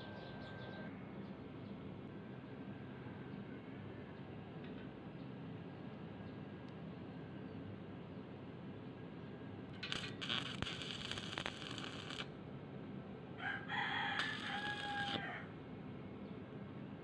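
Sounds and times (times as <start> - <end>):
arc welder crackling: 9.7 - 12.4, 14.1 - 15.4.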